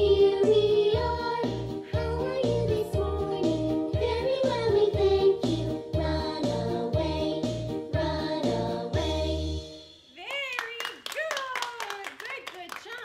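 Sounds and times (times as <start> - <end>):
children's song with bass beat: 0.0 - 10.1.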